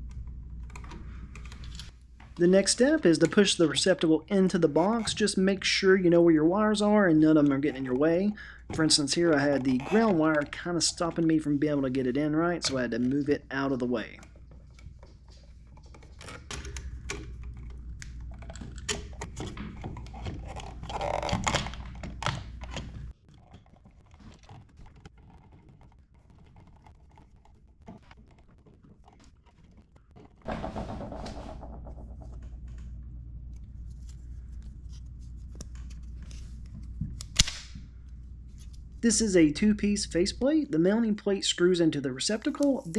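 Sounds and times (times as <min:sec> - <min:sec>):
steady low hum: 0:30.5 - 0:42.9.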